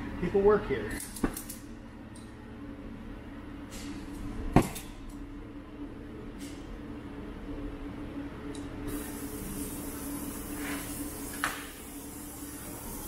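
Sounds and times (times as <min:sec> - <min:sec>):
gas torch hissing: 0:08.9 - 0:13.0.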